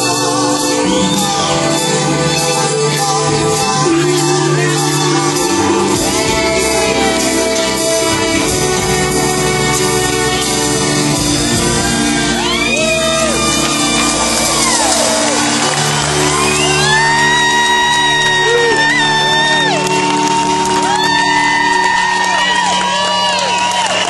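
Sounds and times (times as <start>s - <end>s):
person singing: 0.0s - 23.5s
live band with violins: 0.0s - 24.0s
crowd shouting and whooping: 10.2s - 24.0s.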